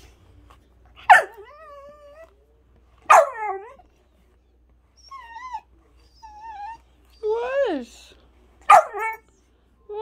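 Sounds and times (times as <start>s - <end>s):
puppy barking: 1.0s - 1.6s, 3.1s - 3.8s, 8.6s - 9.2s
puppy whining: 1.1s - 2.4s, 4.9s - 7.8s.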